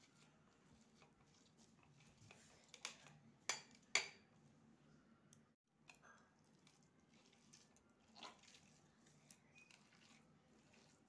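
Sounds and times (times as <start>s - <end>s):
cheese squishing: 6.4s - 11.0s.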